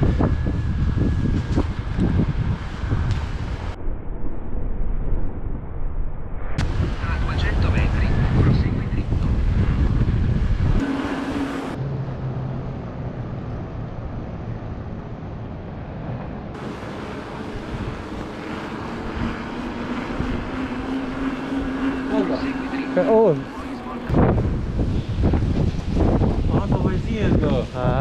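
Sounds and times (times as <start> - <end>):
wind buffeting microphone: 0.0 - 5.6, 6.6 - 28.0.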